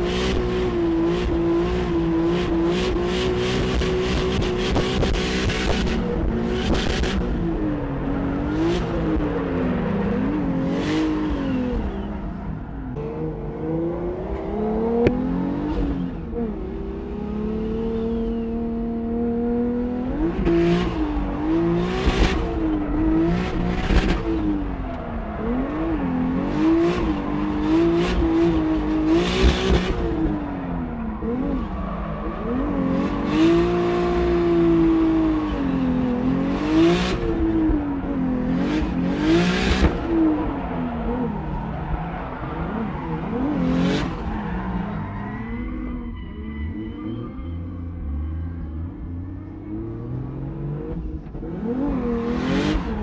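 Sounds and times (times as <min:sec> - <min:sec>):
tire noise bursts: 0:20.1 - 0:53.0
turbocharged engine revving: 0:31.1 - 0:41.7.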